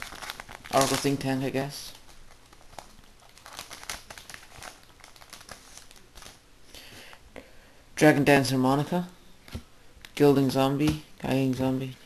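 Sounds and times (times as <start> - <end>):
wrapper crinkling: 0.0 - 6.4.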